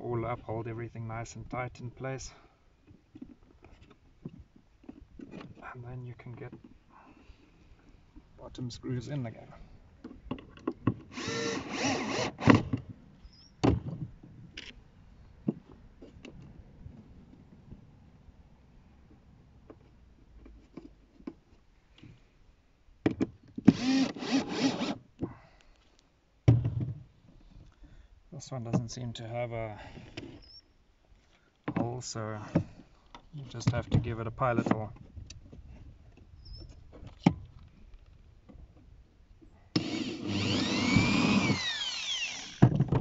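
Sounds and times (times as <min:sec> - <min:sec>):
cordless drill boring into wood: 0:11.1 - 0:12.7, 0:23.7 - 0:25.0, 0:39.7 - 0:42.8.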